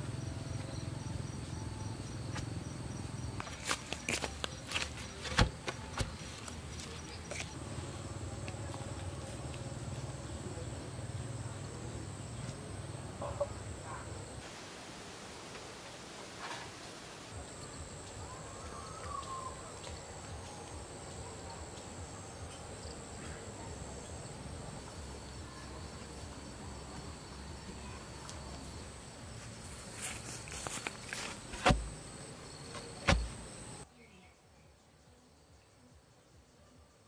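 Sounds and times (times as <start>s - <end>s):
insect buzz: 22.1s - 37.0s
knocks and thud of post: 31.5s - 32.0s, 32.7s - 33.4s.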